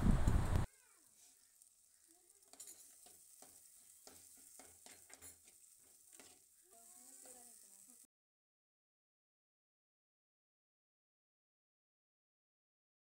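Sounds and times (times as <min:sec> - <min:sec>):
faint sizzling in oil: 0:00.6 - 0:08.1
steel spatula scraping a pot: 0:01.1 - 0:08.0.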